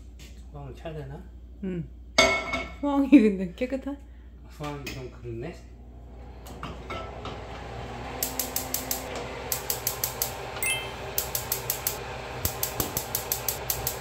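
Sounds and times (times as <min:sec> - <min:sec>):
spark igniter clicking rapidly: 0:08.2 - 0:10.3, 0:11.2 - 0:14.0.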